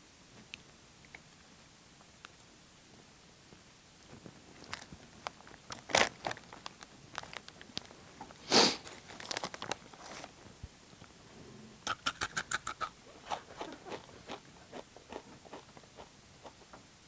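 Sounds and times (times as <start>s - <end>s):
foil bag crinkling: 4.5s - 10.5s
chips crunching: 4.6s - 8.0s, 8.8s - 10.4s, 11.9s - 16.6s.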